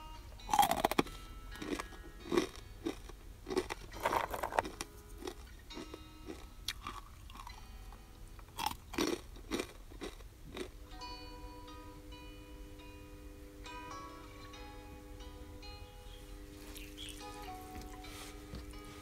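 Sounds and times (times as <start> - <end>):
crispy food crunching: 0.4 - 7.7, 8.4 - 10.8, 16.6 - 18.0.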